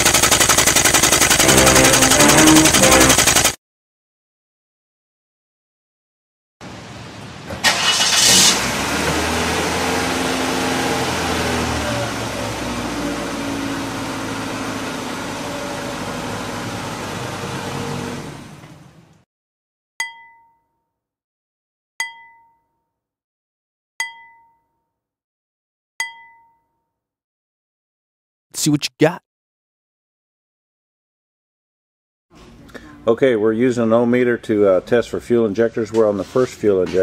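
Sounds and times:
misfiring car engine running: 0.0 - 3.6, 7.7 - 19.0.

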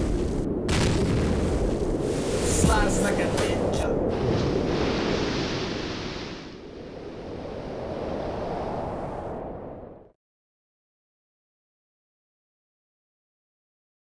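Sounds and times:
rushing wind-like noise: 0.0 - 10.2.

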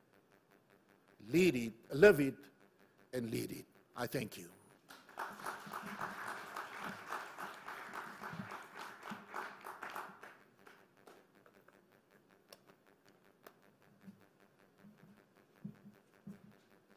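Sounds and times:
audience applauding: 4.9 - 11.2.

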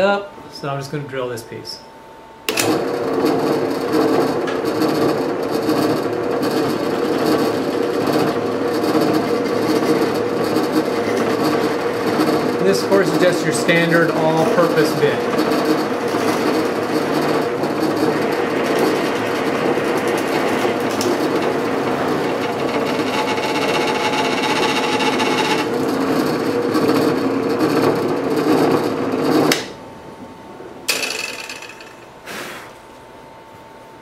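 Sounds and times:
drill press boring wood: 2.5 - 29.7.

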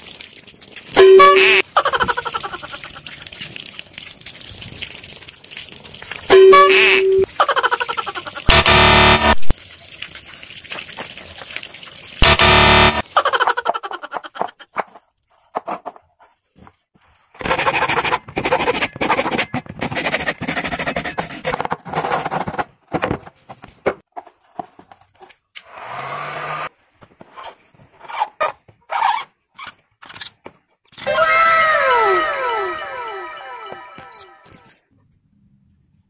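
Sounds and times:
hacksaw cutting plastic pipe: 17.4 - 22.6.

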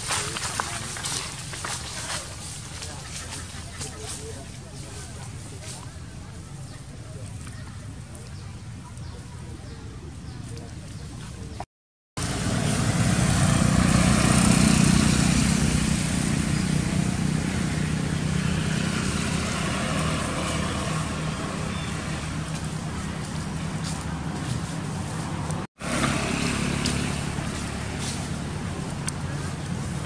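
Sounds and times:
motorbike engine passing: 12.2 - 30.0.

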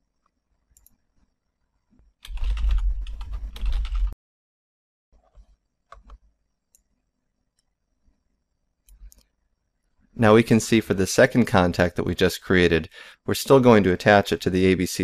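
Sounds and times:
typing on computer keyboard: 2.2 - 4.2.

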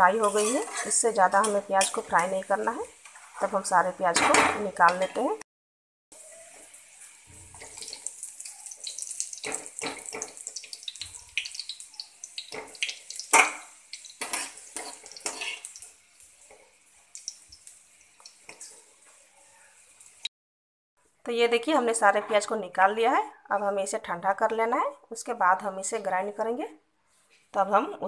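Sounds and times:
oil sizzling in a pan: 0.0 - 5.4, 6.1 - 20.3
metal skimmer scraping a pan: 0.2 - 2.1, 14.2 - 15.7.

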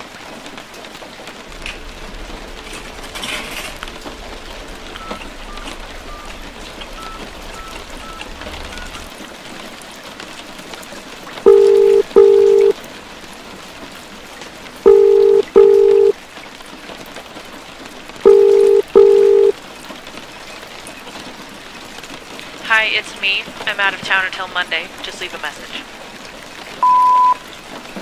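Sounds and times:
steady rain: 0.0 - 28.0
telephone ringback tone: 11.5 - 12.8, 14.9 - 16.2, 18.2 - 19.6, 26.8 - 27.4.

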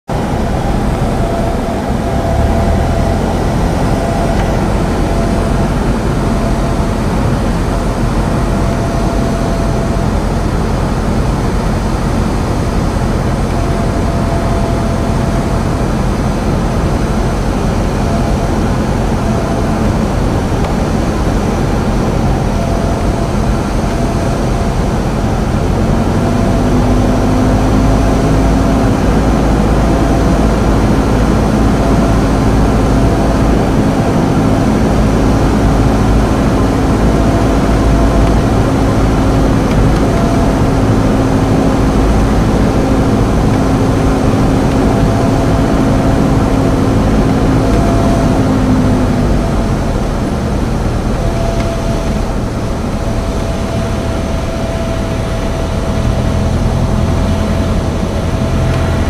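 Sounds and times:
aircraft engine droning in cabin: 0.1 - 59.0.

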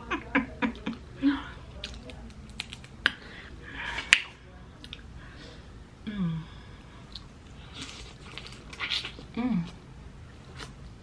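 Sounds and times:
wet mouth chewing sounds: 1.7 - 3.2, 7.1 - 9.8.

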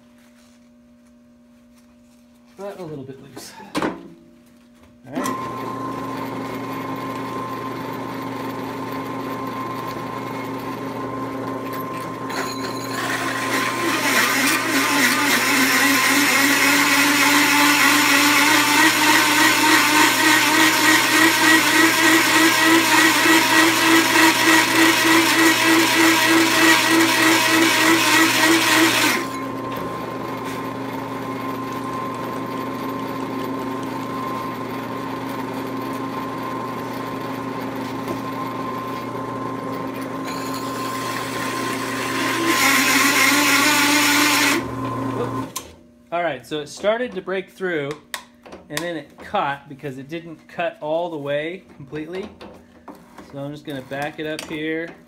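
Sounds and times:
drill press motor running: 5.1 - 45.8.

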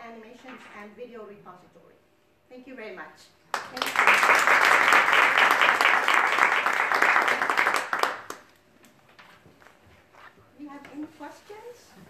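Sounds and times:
small audience clapping: 3.5 - 8.6.

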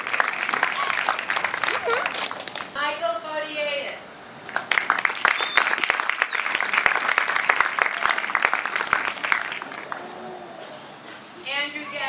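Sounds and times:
audience applause: 0.0 - 2.7, 4.5 - 10.3.

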